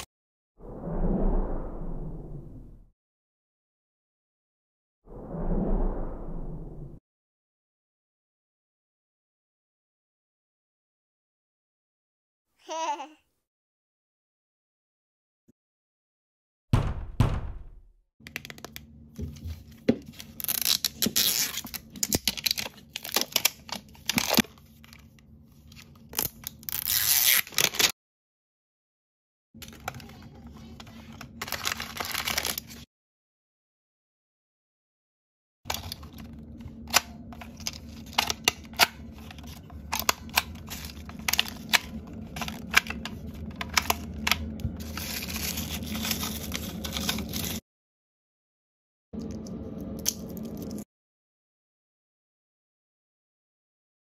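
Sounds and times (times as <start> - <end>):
sudden loud sound: 16.8 - 18.0
plastic wrapper tearing: 20.2 - 24.5, 26.1 - 27.9, 31.4 - 32.8, 37.4 - 47.6
fingernails scratching plastic wrapper: 44.8 - 47.6.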